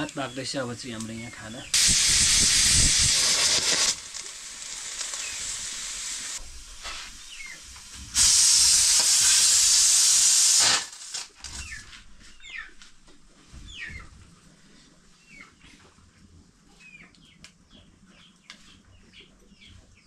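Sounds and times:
pressure cooker hissing steam: 0.0s - 11.3s.

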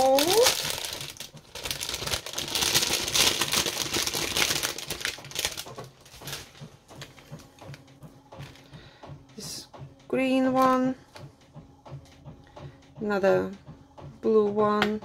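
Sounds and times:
plastic packaging crinkling: 0.0s - 6.7s.

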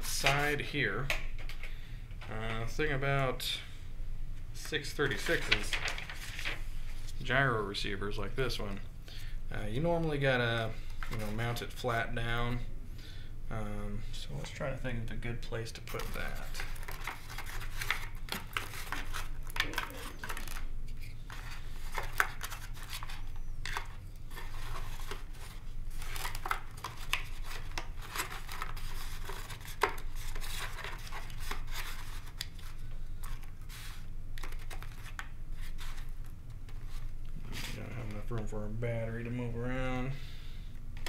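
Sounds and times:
steady low hum: 0.0s - 41.0s
hands rustling and rubbing wires: 15.5s - 38.5s.

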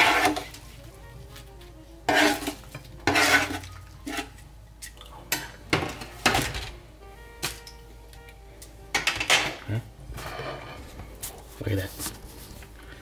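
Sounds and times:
metal tongs scraping on metal pan: 0.0s - 0.6s, 2.0s - 4.4s.

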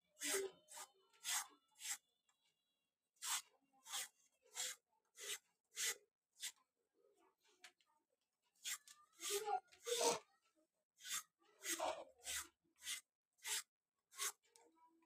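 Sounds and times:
hand peeler scraping gourd skin: 0.2s - 2.0s, 3.2s - 6.6s, 8.6s - 10.2s, 11.0s - 14.4s.

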